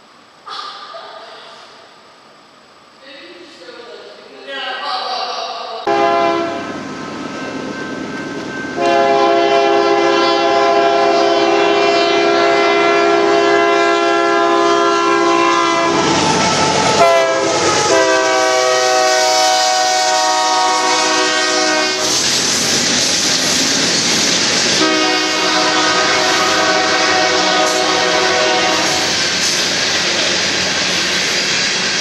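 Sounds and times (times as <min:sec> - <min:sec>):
diesel locomotive horn blasts: 0:05.9 - 0:06.7, 0:08.8 - 0:16.1, 0:16.9 - 0:22.2, 0:24.8 - 0:29.1.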